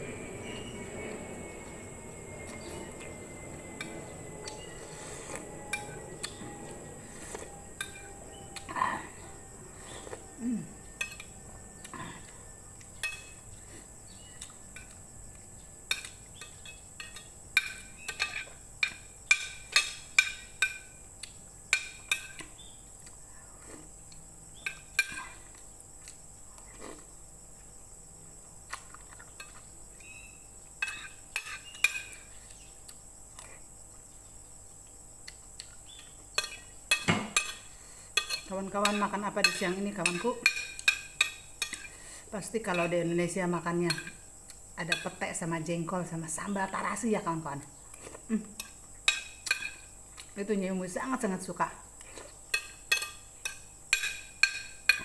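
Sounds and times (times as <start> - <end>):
aircraft droning overhead: 0.0 - 13.9
cutlery clinking on plate: 36.4 - 41.9, 52.5 - 55.0.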